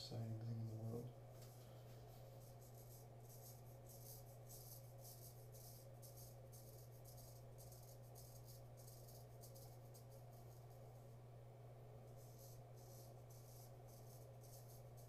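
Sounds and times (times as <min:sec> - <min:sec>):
steady low hum: 0:00.0 - 0:15.0
razor scratching stubble: 0:02.3 - 0:10.8, 0:12.1 - 0:15.0.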